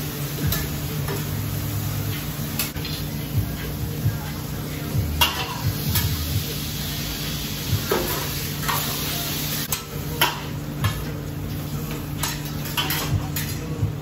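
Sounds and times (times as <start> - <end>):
chicken sizzling on a griddle: 0.0 - 10.2.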